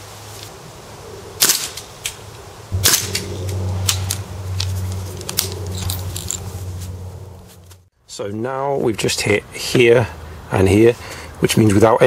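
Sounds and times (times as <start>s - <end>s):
steady low drone: 2.6s - 7.9s.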